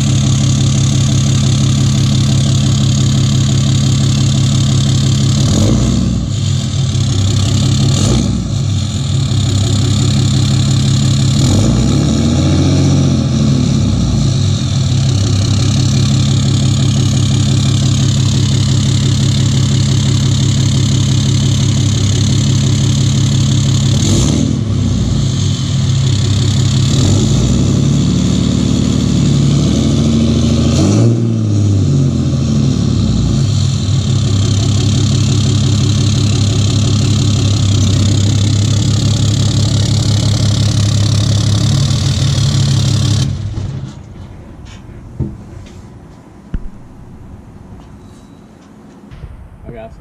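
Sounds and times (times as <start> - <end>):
diesel engine idling and revving: 0.0 - 48.1
single knock: 46.5 - 47.4.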